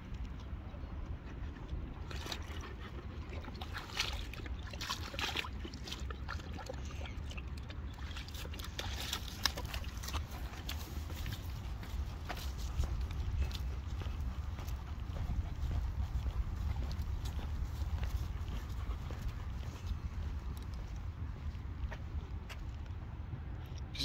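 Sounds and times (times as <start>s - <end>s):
water sloshing and splashing: 1.7s - 21.9s
wind rumble on microphone: 7.2s - 24.0s.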